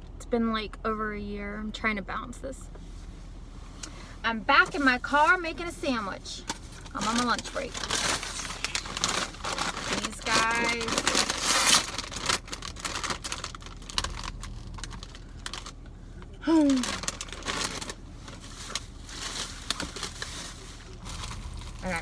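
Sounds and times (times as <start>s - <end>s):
plastic packaging crinkling: 6.5s - 15.9s, 16.5s - 22.0s.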